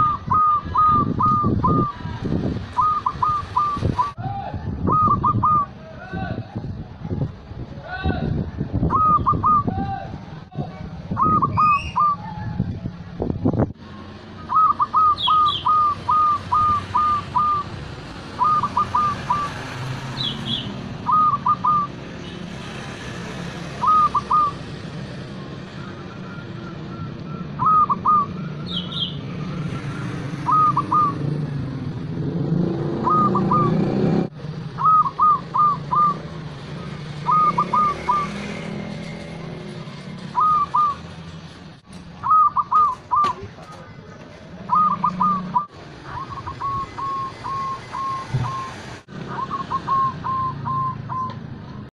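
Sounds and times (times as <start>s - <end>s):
dove cooing: 0.0s - 1.9s, 2.8s - 4.2s, 4.9s - 5.7s, 8.9s - 9.7s, 14.4s - 19.6s, 20.3s - 22.0s, 23.8s - 24.7s, 26.1s - 28.5s, 29.8s - 31.4s, 33.0s - 33.8s, 34.8s - 38.4s, 40.3s - 41.0s, 42.2s - 43.9s, 44.6s - 51.4s.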